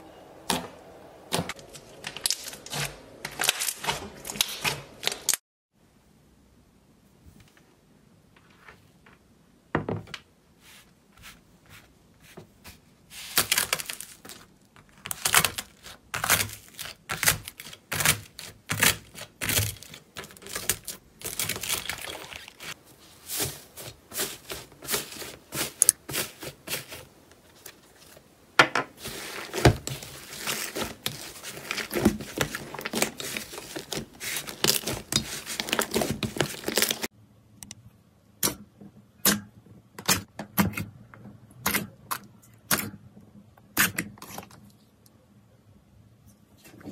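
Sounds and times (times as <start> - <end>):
slime crust crackling: 13.3 - 28.1, 29.0 - 37.1.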